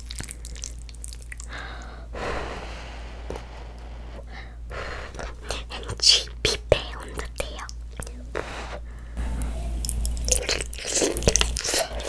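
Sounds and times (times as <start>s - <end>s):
soft breath out: 1.5s - 5.4s.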